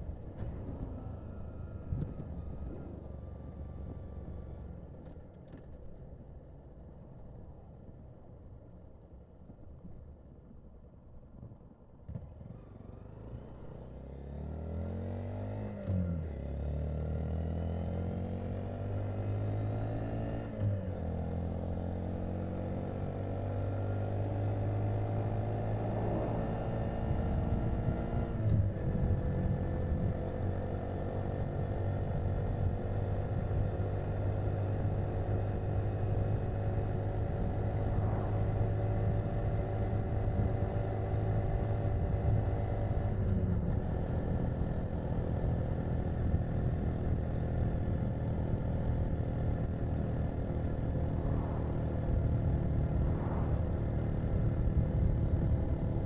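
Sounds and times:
road and wind noise: 0:00.0 - 0:56.0
motorcycle engine accelerating: 0:12.4 - 0:56.0.

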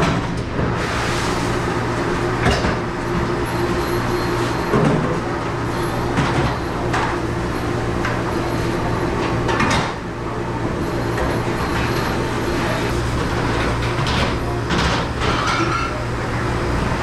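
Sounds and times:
dishwasher and exhaust hood hum: 0:00.0 - 0:17.0
dishes and racks clattering: 0:02.4 - 0:02.9, 0:03.5 - 0:07.3, 0:09.2 - 0:10.0, 0:10.7 - 0:16.0.

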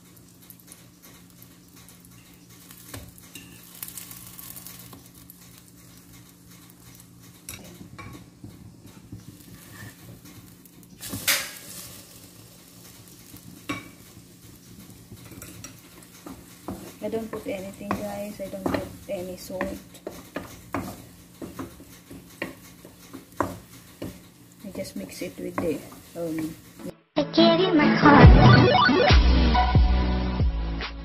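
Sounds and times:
food sizzling in a pan: 0:00.0 - 0:26.9
spatula scraping a pan: 0:02.1 - 0:07.0, 0:09.0 - 0:26.9.

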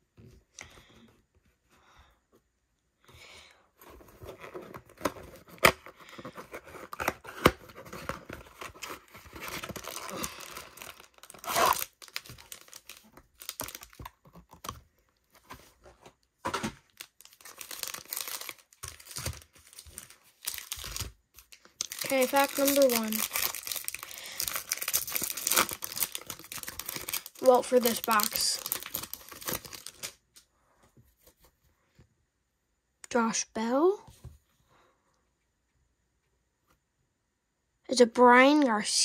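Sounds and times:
cardboard box crinkling: 0:03.8 - 0:16.0, 0:16.8 - 0:30.2
paper tearing: 0:11.2 - 0:11.9.

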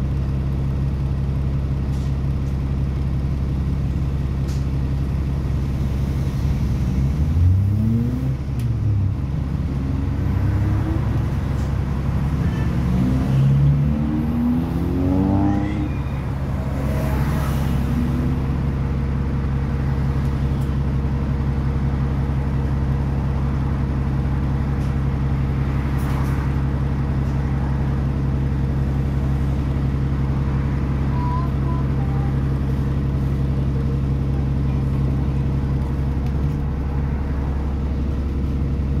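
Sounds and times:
diesel bus engine droning: 0:00.0 - 0:39.0.

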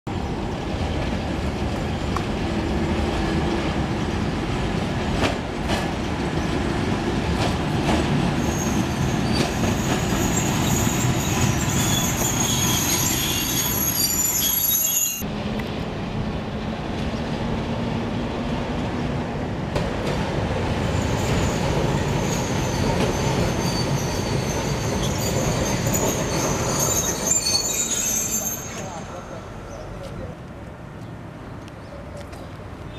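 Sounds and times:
tram wheels rumbling on rail: 0:00.1 - 0:32.9
high-pitched wheel squeal: 0:08.4 - 0:15.3, 0:21.1 - 0:29.8.

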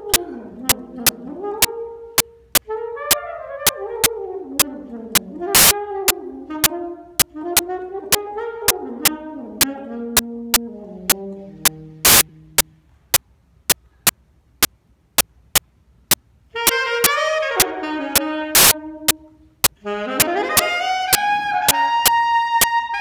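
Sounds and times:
saxophone playing slow blues: 0:00.0 - 0:12.9, 0:16.5 - 0:23.0
repeating sharp click: 0:04.6 - 0:05.7, 0:07.2 - 0:07.7, 0:10.2 - 0:16.8, 0:18.5 - 0:19.8, 0:20.6 - 0:21.2.

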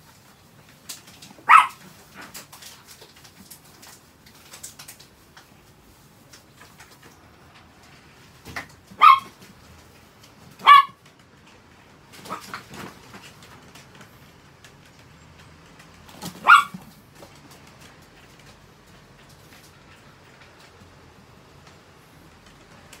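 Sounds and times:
small dog barking: 0:01.4 - 0:01.9, 0:09.0 - 0:09.4, 0:10.6 - 0:11.0, 0:16.2 - 0:16.9.

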